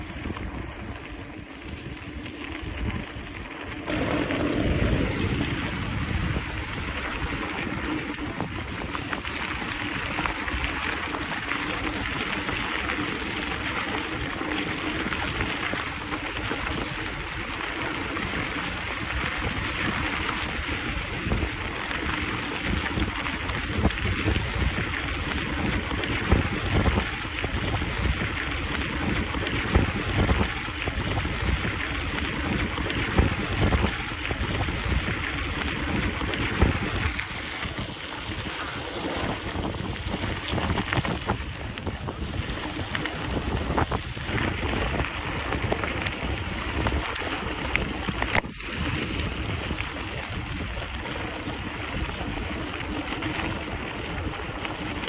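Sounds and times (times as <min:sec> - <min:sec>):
low rumble: 0:00.0 - 0:11.4
bike tyres rushing on dirt: 0:00.0 - 0:55.0
wind on microphone: 0:00.0 - 0:55.0.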